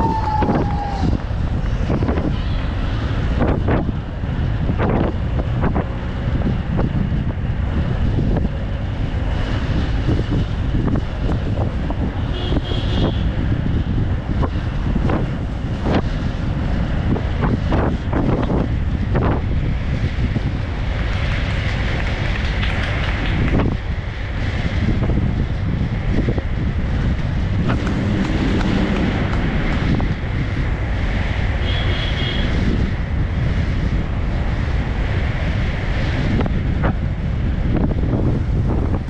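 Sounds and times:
wind buffeting microphone: 0.0 - 39.0.

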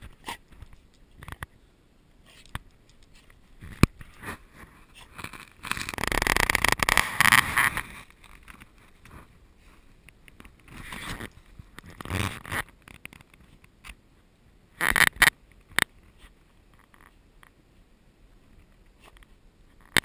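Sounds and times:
snow crunching and scraping: 3.6 - 10.0, 10.6 - 12.6.

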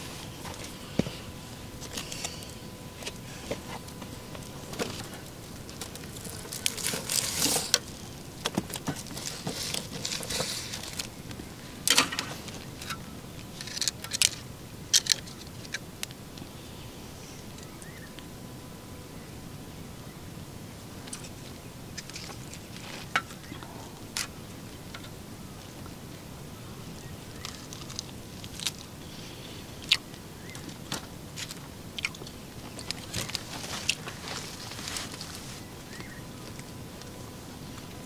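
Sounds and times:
food rustling and crackling: 0.0 - 16.1, 27.0 - 36.8.

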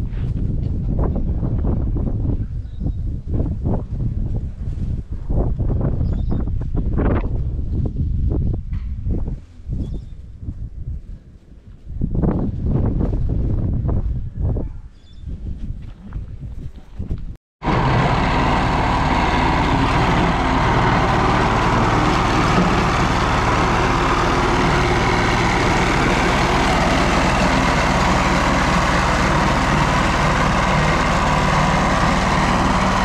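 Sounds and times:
roller compactor engine running: 17.6 - 33.0.

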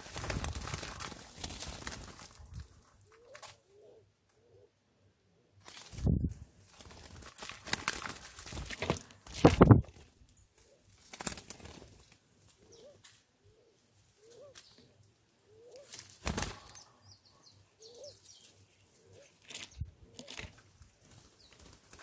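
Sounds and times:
doves' wings flapping: 0.0 - 3.6, 5.6 - 10.1, 10.9 - 12.2, 15.8 - 16.8, 19.5 - 22.0
doves cooing: 0.0 - 4.8, 12.6 - 17.1, 17.8 - 18.3, 18.9 - 20.6.

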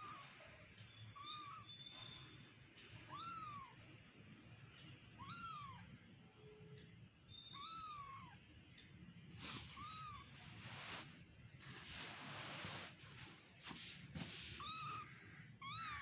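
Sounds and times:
soft rustling: 9.3 - 15.2.

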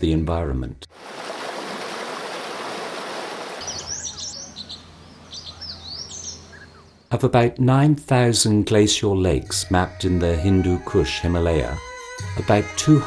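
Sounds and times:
stream rushing over rocks: 1.0 - 3.7
small birds chirping: 3.5 - 7.1.

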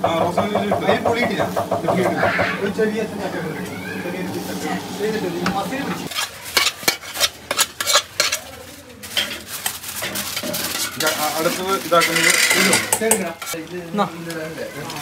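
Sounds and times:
food sizzling: 0.3 - 15.0
metal utensil scraping a pan: 6.0 - 13.6.

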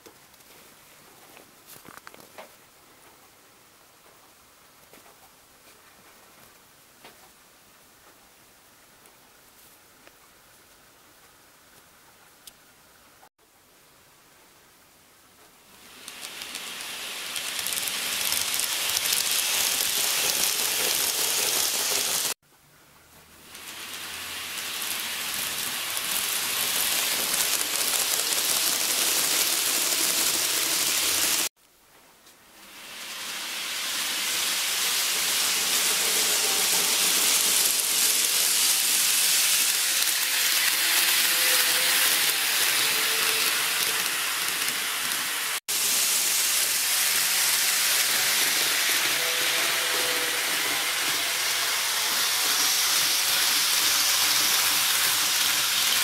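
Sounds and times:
model train wheels hissing on rails: 15.7 - 22.4, 23.4 - 31.5, 32.6 - 56.0.

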